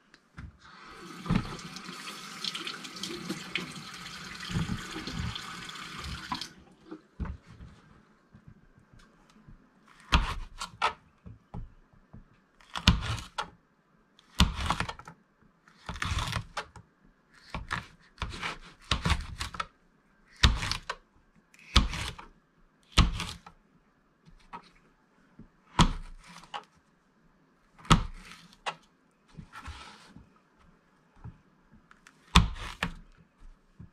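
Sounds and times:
knife cutting on plastic board: 9.9s - 11.0s, 12.6s - 13.5s, 15.8s - 16.7s, 17.4s - 19.6s, 20.4s - 20.9s, 21.6s - 22.2s, 22.9s - 23.5s, 25.7s - 26.7s, 27.8s - 28.8s, 32.2s - 33.1s.

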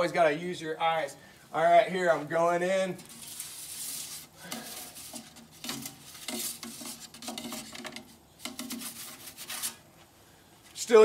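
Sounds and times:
metal peel scraping stone: 3.0s - 9.8s.

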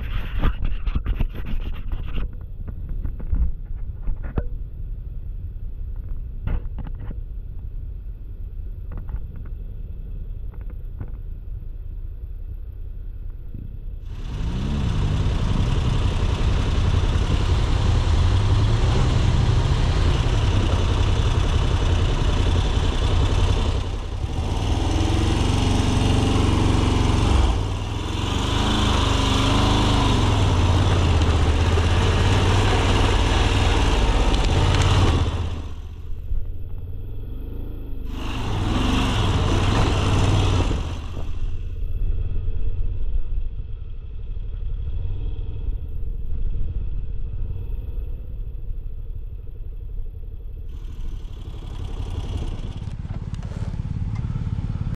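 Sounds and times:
motorcycle engine: 14.0s - 55.0s.

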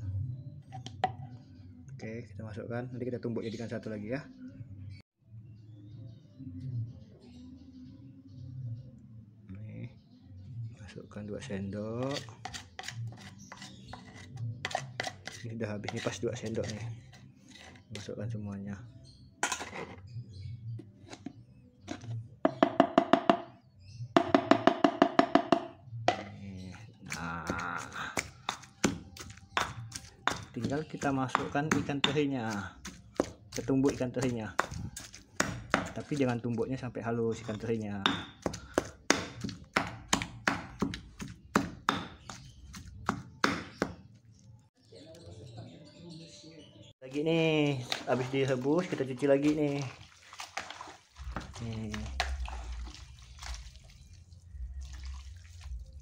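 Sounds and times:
spoon scraping: 12.0s - 18.2s, 19.1s - 22.6s, 26.2s - 41.6s
pestle pounding in stone mortar: 22.5s - 23.5s, 24.2s - 26.3s, 27.0s - 36.8s, 37.4s - 44.0s, 47.8s - 53.6s.

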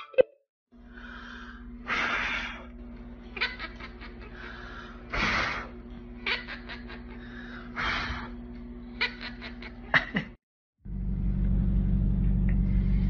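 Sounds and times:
low steady hum: 0.8s - 10.2s, 10.9s - 13.0s
parakeet hissing: 3.4s - 8.4s.

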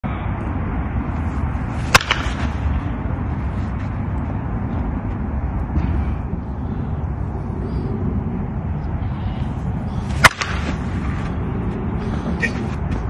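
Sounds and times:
wind rumble on microphone: 0.0s - 13.0s
bat cracking a softball: 1.7s - 3.0s, 10.1s - 11.3s.

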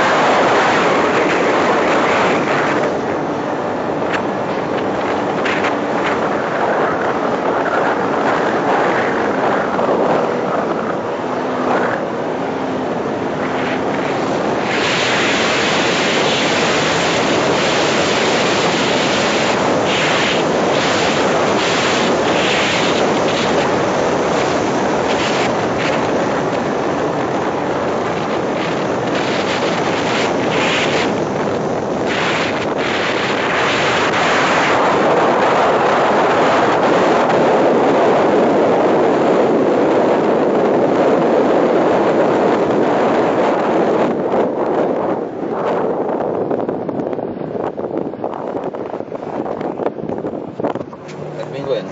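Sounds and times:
wind buffeting microphone: 0.0s - 51.9s
faint vehicle engine: 50.8s - 51.9s.

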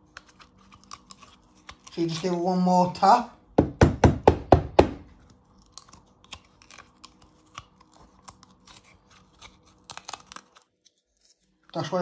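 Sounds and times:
fingers pulling pepper seeds: 0.0s - 2.6s, 5.2s - 12.0s.

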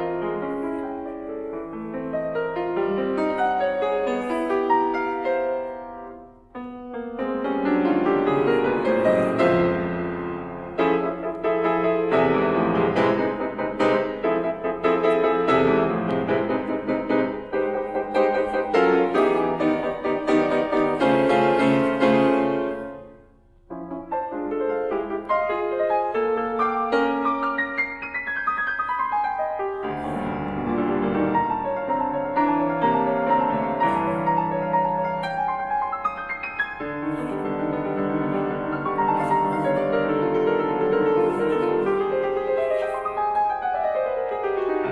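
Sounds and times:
grand piano playing: 0.0s - 44.9s.

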